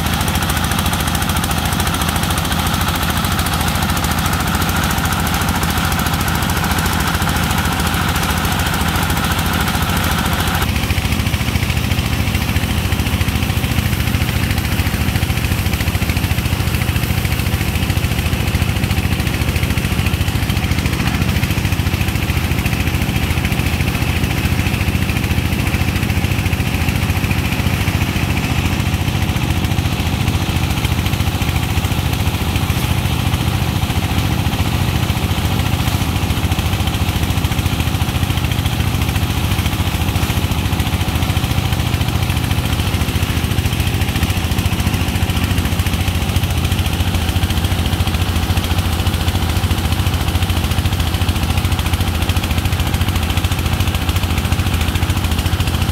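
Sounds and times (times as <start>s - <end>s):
engine running with low rumble: 0.0s - 55.9s
water jetting from hoses onto sand: 0.0s - 55.9s.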